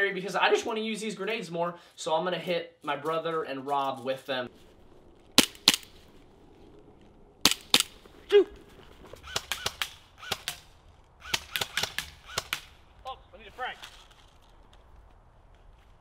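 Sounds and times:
airsoft rifle shots: 5.4 - 6.1, 7.4 - 8.1, 9.2 - 12.9.

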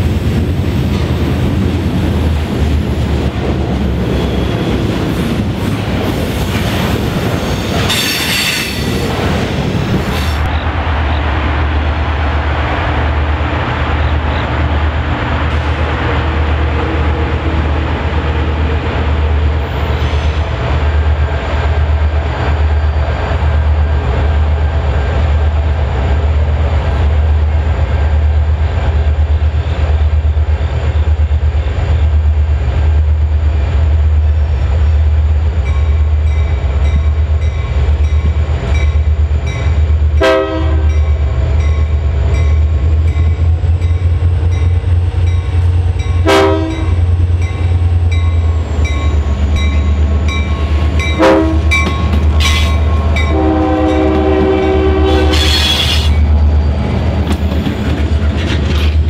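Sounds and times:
diesel locomotive engine rumble: 0.0 - 59.0
locomotive horn blowing: 40.2 - 41.0, 46.2 - 47.0, 51.0 - 56.2.

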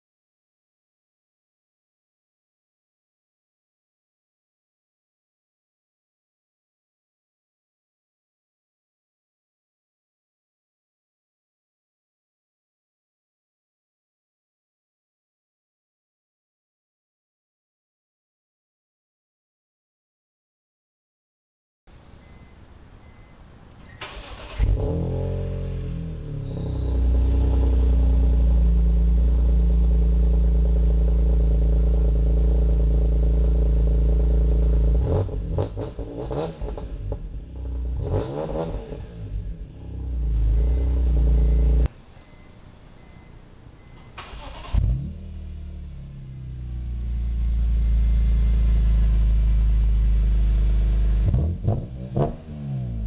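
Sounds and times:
car engine starting: 23.8 - 41.9, 43.8 - 53.0
car engine revving: 24.0 - 41.9, 44.3 - 53.0
car engine idling: 25.5 - 35.0, 39.0 - 51.3.

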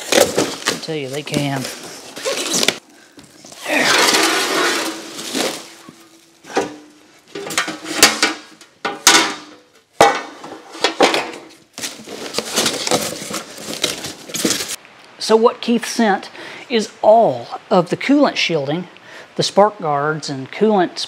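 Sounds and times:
foam and cardboard packing rustling: 0.0 - 9.2, 9.9 - 14.8
sheet metal clanking: 3.6 - 11.5.

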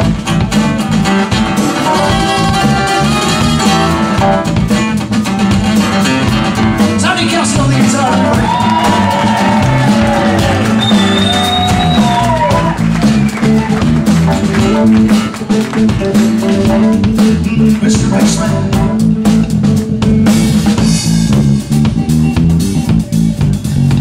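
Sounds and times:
acoustic guitar strumming: 0.0 - 8.4
bass guitar line: 0.0 - 24.0
drums keeping a beat: 0.0 - 24.0
sliding high notes: 5.9 - 17.8.

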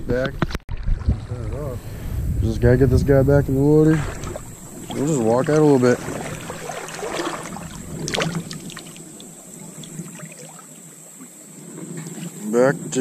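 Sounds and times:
water sloshing and splashing: 0.4 - 1.6, 3.6 - 12.5.

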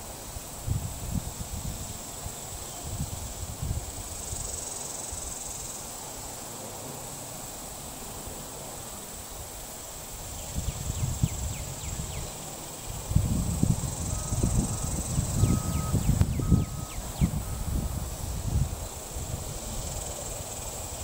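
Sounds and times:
wind rumble on microphone: 0.0 - 5.6, 10.0 - 21.0
high-pitched insect drone: 0.0 - 21.0.

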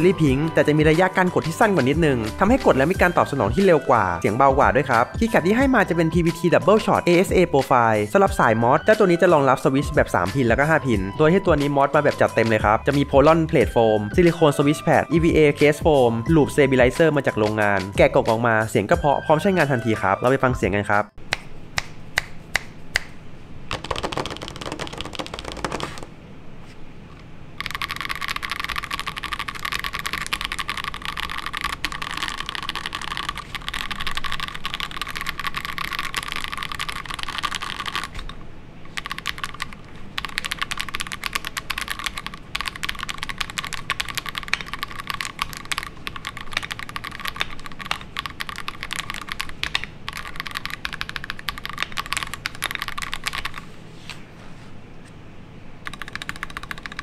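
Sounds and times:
mechanical keyboard typing: 0.0 - 7.8, 23.7 - 26.1, 27.6 - 53.6, 55.8 - 57.0.

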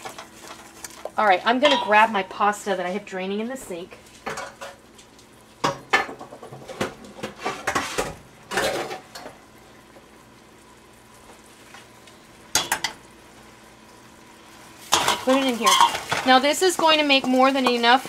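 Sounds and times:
dishes and cookware clattering: 1.6 - 2.1, 4.2 - 4.8, 5.6 - 9.4, 12.5 - 13.0, 14.9 - 18.0.

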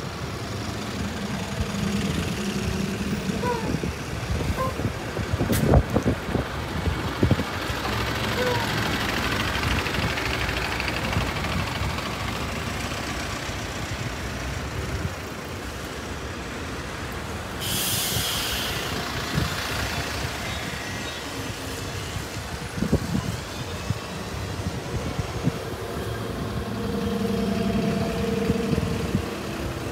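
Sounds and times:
bus traffic: 0.0 - 29.9
air brake hiss: 17.6 - 18.9.

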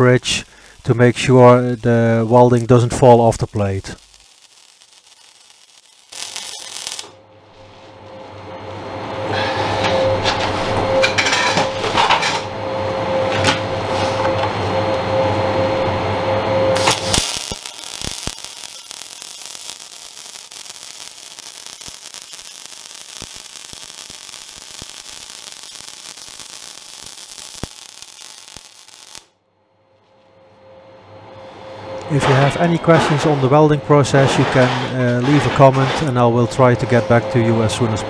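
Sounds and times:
welding arc crackling and hissing: 0.0 - 8.2, 16.7 - 29.3, 32.0 - 38.0.

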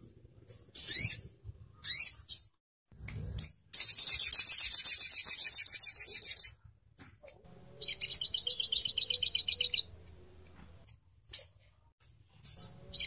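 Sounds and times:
bird singing high trills: 3.8 - 6.6, 7.8 - 10.0.

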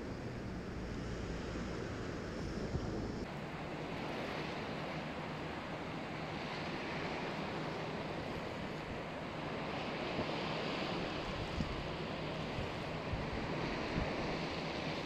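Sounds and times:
wind rumbling on microphone: 0.0 - 4.7, 9.6 - 15.0.

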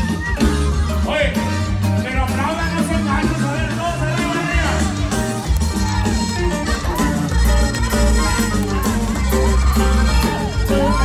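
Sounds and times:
latin dance band music: 0.0 - 11.0.

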